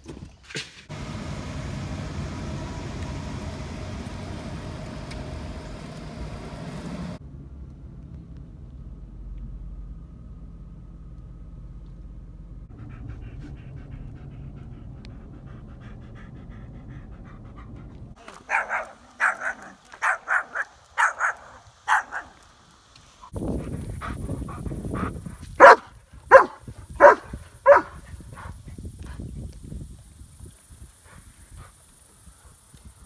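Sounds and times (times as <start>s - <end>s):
low background rumble: 0.9s - 18.2s
car cabin road noise: 0.9s - 18.3s
dog barking: 18.4s - 22.4s, 25.6s - 28.5s.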